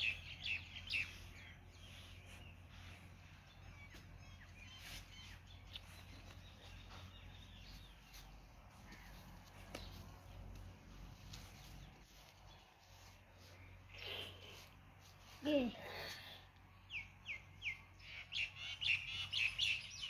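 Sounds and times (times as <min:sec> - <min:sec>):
faint bird chirps: 0:00.0 - 0:09.2
low steady hum: 0:00.0 - 0:18.3.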